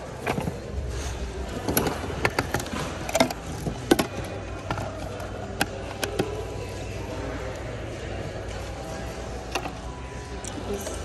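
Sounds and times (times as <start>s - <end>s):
hard objects clacking together: 0.0s - 0.8s, 1.5s - 6.5s.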